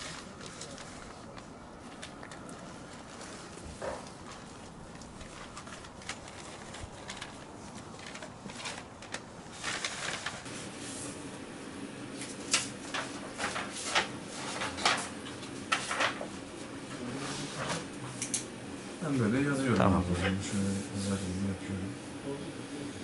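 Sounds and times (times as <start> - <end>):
paper pages rustling and flapping: 0.0 - 11.2, 12.2 - 18.0.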